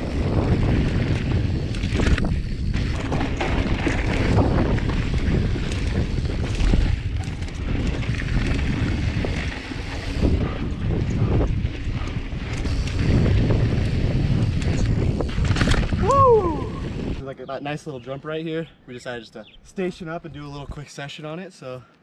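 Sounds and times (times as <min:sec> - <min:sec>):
bike knocking and rattling: 0:00.0 - 0:16.2
wind buffeting microphone: 0:00.0 - 0:17.7.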